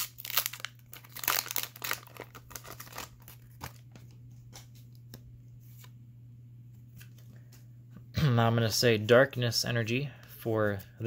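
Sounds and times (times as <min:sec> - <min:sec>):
foil wrapper crinkling: 0:00.0 - 0:04.0.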